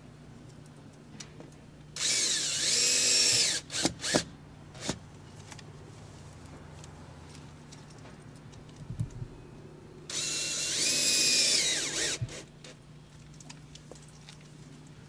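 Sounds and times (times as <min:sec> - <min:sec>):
cordless drill driving a screw: 0:02.0 - 0:05.0, 0:10.1 - 0:12.5.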